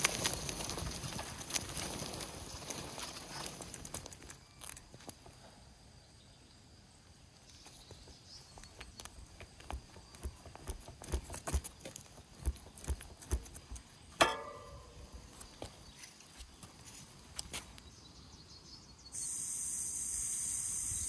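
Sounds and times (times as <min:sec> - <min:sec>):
bike knocks and rattles: 0:09.6 - 0:15.7
bike heavy thumps: 0:14.2 - 0:15.1
sharp metallic clank: 0:14.2 - 0:15.1.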